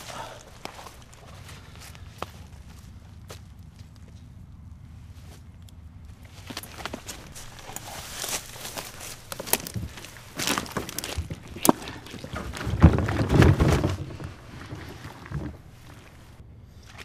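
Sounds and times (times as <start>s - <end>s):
twigs snapping: 5.3s - 13.8s
footsteps through dry leaves: 6.3s - 11.2s
thumps and scrapes in a kayak: 6.5s - 17.0s.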